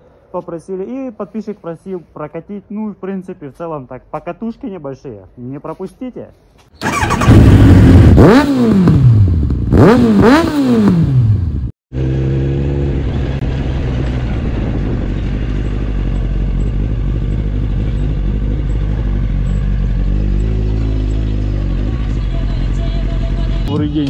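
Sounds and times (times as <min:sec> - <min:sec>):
motorcycle engine revving: 0:06.8 - 0:23.7
motorcycle engine running at low revs: 0:06.8 - 0:24.0.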